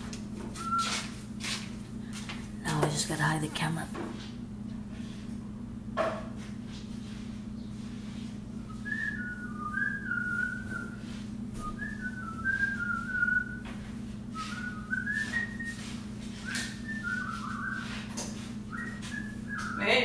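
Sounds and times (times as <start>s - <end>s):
person whistling a tune: 0.6s - 1.0s, 8.7s - 11.0s, 11.6s - 13.7s, 14.4s - 18.0s, 18.7s - 20.0s.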